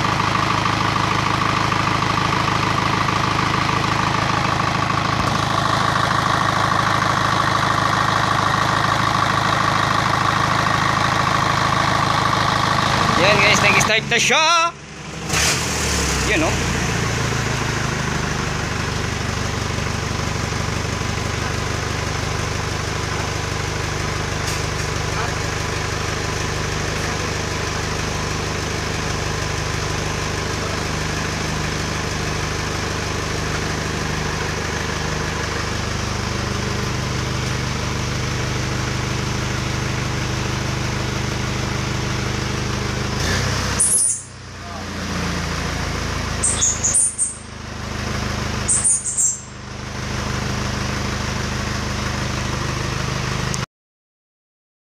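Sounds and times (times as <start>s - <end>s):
diesel engine idling: 0.0s - 53.6s
short high chirps: 43.8s - 44.4s, 46.4s - 47.5s, 48.7s - 49.6s.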